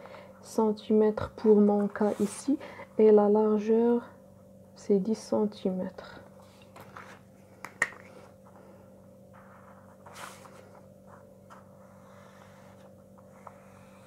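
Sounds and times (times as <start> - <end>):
faint steady hum: 0.0 - 14.0
paper sliding and rustling: 9.4 - 11.7.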